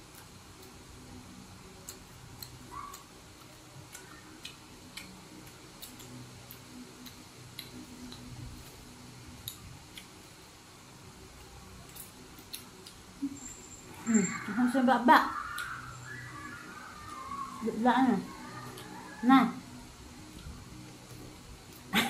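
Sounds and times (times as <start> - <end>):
faint low hum: 0.0 - 22.0
people chewing wetly: 1.6 - 10.6, 11.2 - 14.5, 15.3 - 17.6.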